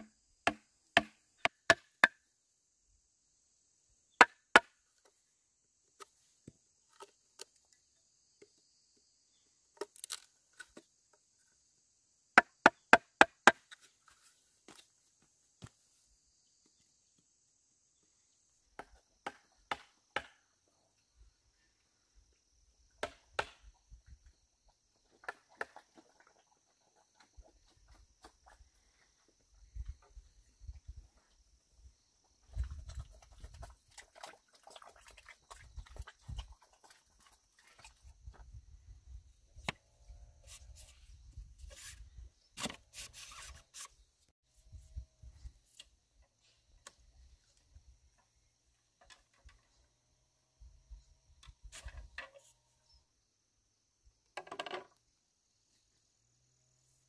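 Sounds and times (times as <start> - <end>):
chopping strikes on bamboo: 0.0 - 2.2, 4.2 - 4.8, 12.4 - 13.7, 18.8 - 20.4, 23.0 - 23.6.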